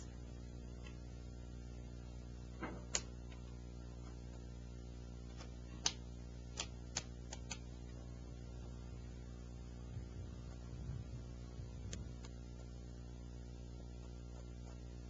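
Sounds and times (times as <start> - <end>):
low hum: 0.0 - 15.0
hands tapping paper: 5.3 - 7.7.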